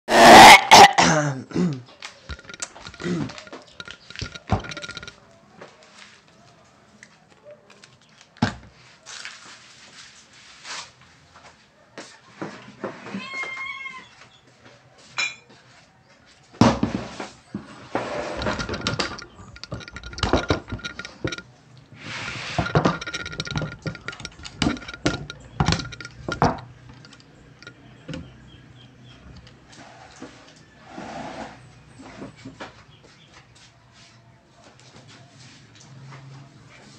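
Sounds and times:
cat meowing: 13.1s - 14.2s
objects knocking on a table: 16.6s - 21.4s, 22.6s - 28.3s.

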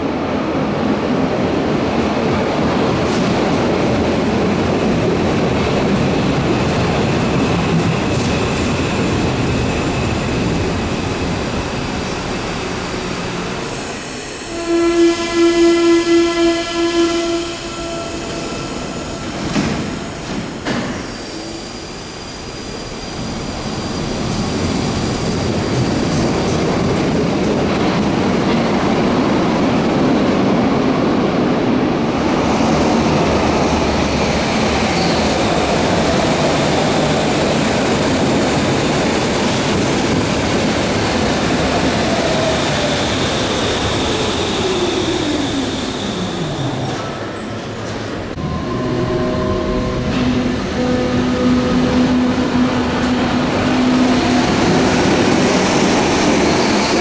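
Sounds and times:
train running through station: 0.0s - 57.0s
pulsing warning tone: 48.4s - 54.1s.

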